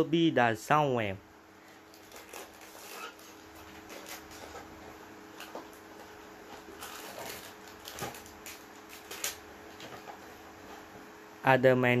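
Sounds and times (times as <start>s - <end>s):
faint steady hum: 0.0s - 12.0s
packaging rustling and clicking: 1.7s - 10.3s.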